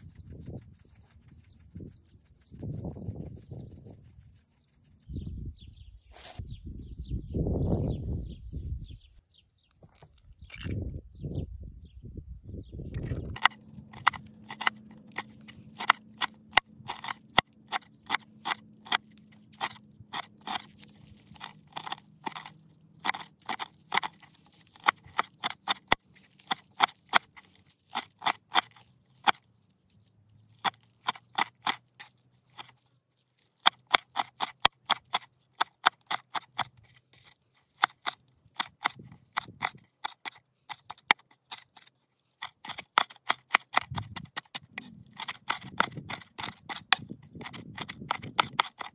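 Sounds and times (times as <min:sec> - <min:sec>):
knife chopping on wooden board: 0:13.4 - 0:29.4, 0:30.6 - 0:32.7, 0:33.5 - 0:48.9.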